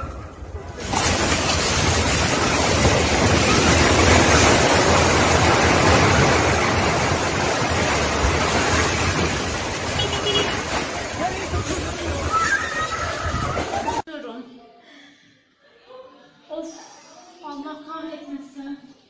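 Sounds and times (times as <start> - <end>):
building collapsing rumble: 0.3 - 14.0.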